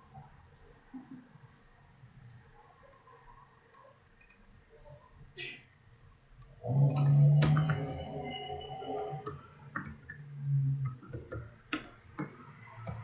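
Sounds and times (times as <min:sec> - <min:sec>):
low steady hum: 0:01.5 - 0:13.0
computer keyboard typing: 0:06.7 - 0:08.0, 0:09.2 - 0:10.2, 0:10.9 - 0:13.0.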